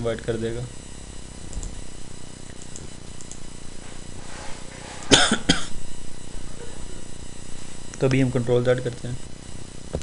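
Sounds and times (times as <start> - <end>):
faint electrical hum: 0.0 - 10.0
person coughing: 5.1 - 5.8.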